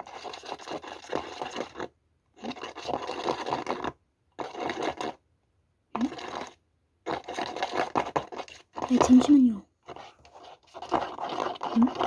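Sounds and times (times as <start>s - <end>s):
fingers scraping plastic mould: 6.0s - 12.0s.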